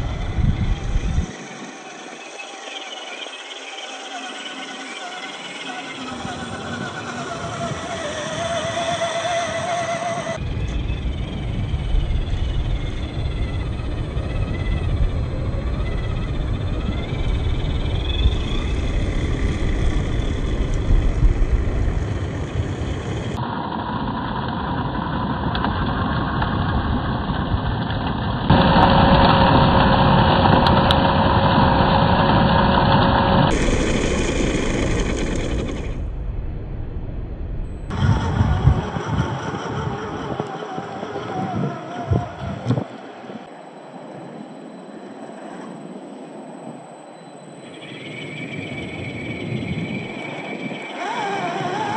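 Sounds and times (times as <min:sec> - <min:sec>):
motor and gear whine: 0:00.0 - 0:23.5, 0:27.8 - 0:36.5, 0:37.6 - 0:51.9
tyres rumbling on dirt and rock: 0:00.0 - 0:36.4, 0:50.2 - 0:51.9.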